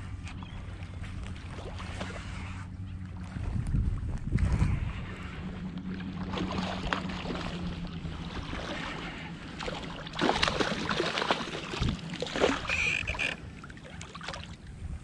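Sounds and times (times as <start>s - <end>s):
fish splashing in water: 0.7s - 2.6s, 5.9s - 14.6s.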